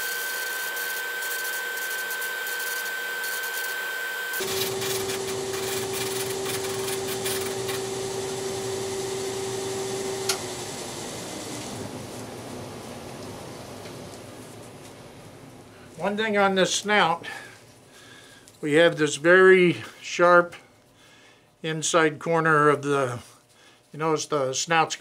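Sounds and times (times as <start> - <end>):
drum sander whining: 0.0 - 12.1.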